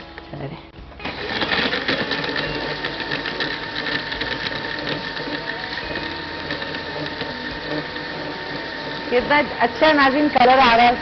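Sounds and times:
electric blender crushing ice: 1.0s - 11.0s
ice clicking against blender jar: 1.1s - 9.2s.

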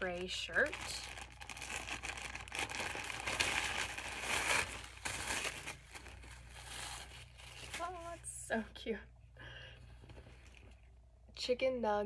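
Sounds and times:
packaging crinkling and rustling: 0.0s - 8.4s.

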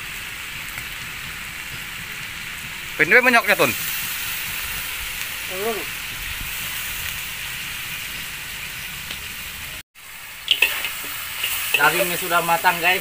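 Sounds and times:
meat sizzling in a wok: 0.0s - 13.0s
metal spatula scraping a wok: 10.4s - 13.0s.

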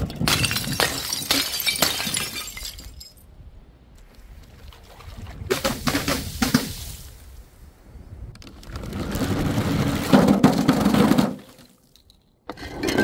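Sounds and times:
glass shattering: 0.1s - 3.2s
rough rumble: 5.5s - 11.4s.

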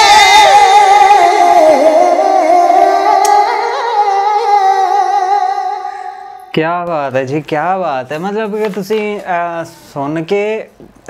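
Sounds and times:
voices singing long note: 0.0s - 6.6s.

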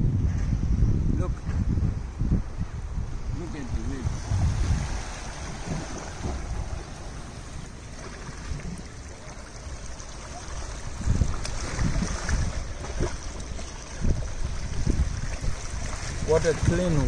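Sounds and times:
wind buffeting microphone: 0.0s - 17.0s
small waves lapping on rocks: 3.6s - 17.0s.

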